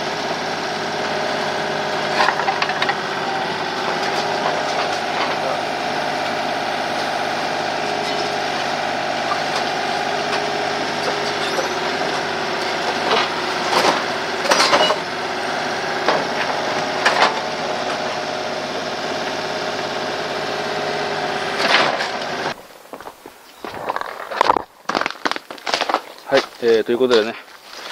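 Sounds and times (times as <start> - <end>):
excavator engine running: 0.0 - 27.2
wood cracking and knocking: 23.0 - 27.9.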